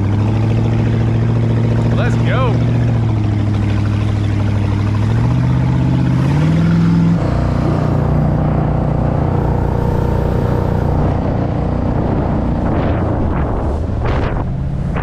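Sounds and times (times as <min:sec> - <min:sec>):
boat engine under throttle: 0:00.0 - 0:15.0
water noise: 0:00.0 - 0:15.0
wind noise: 0:09.2 - 0:15.0.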